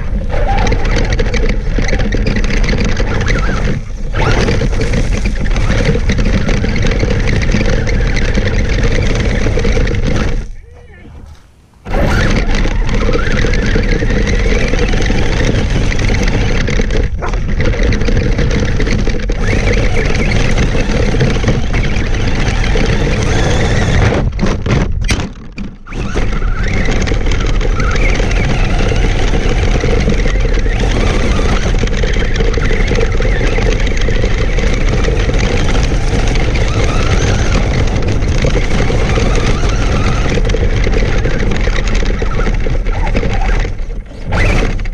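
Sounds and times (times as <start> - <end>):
toy truck drivetrain running: 0.0 - 11.0, 11.9 - 44.9.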